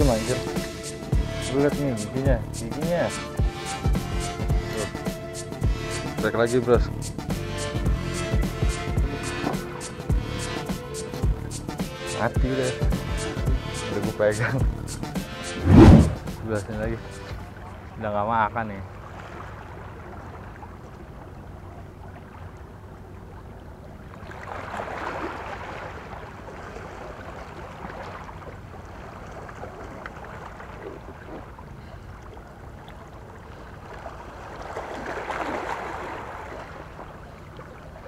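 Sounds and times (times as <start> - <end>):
small sea waves washing ashore: 18.7 - 38.0.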